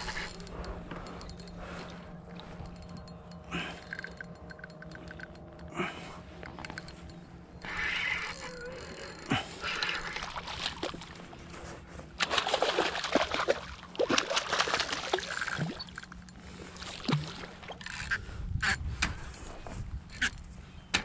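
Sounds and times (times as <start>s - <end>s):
fish splashing at water surface: 12.2s - 16.0s.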